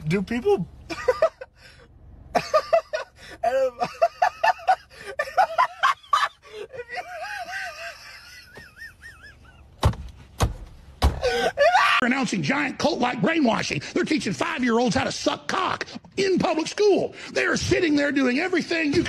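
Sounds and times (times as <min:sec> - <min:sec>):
man laughing: 0:00.9 - 0:09.8, 0:11.2 - 0:12.0.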